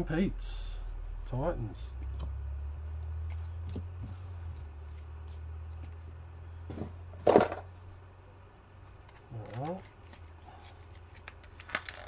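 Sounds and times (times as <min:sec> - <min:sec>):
steady low hum: 0:00.0 - 0:12.0
cards clicking and rustling: 0:08.9 - 0:12.0.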